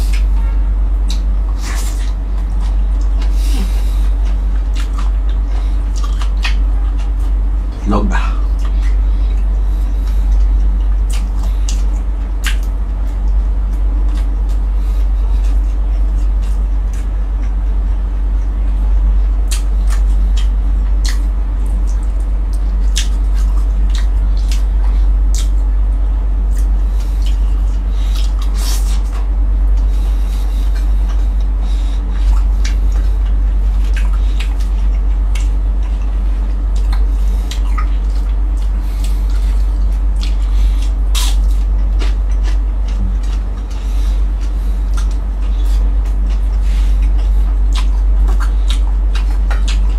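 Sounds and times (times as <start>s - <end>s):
crunchy chewing of fried fish: 0.0s - 49.9s
steady low hum: 0.0s - 49.9s
wet chewing smacks: 1.0s - 7.4s, 8.3s - 17.8s, 19.5s - 25.6s, 26.4s - 49.9s.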